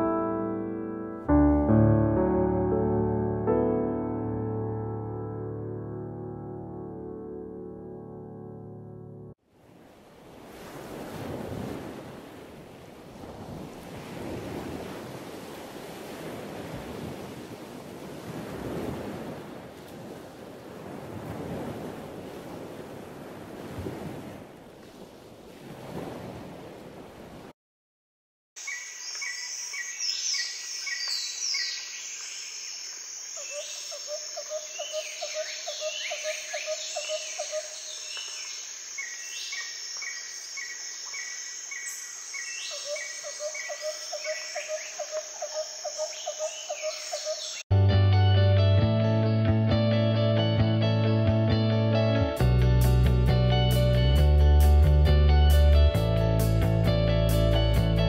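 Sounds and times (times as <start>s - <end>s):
wind rushing over microphone: 10.4s - 27.5s
birds singing in chorus: 28.6s - 47.6s.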